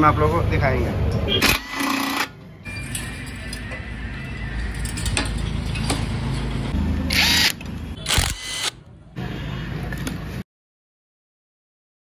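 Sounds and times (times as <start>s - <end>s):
electric power tool whirring: 7.1s - 8.8s.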